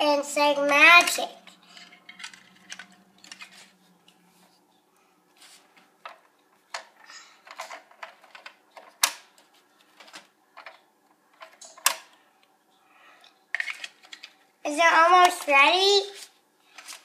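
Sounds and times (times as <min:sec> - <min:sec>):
plastic toy pieces clicking: 0:01.0 - 0:03.6.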